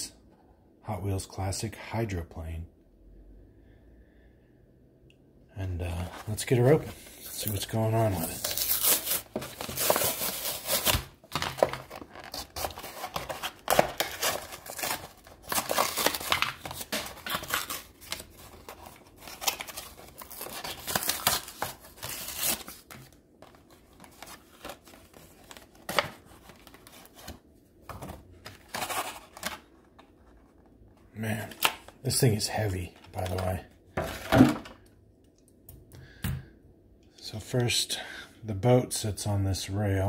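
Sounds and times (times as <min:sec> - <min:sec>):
packaging handling sounds: 0:06.0 - 0:34.8
cardboard ripping and crinkling: 0:07.4 - 0:23.1, 0:28.5 - 0:29.6.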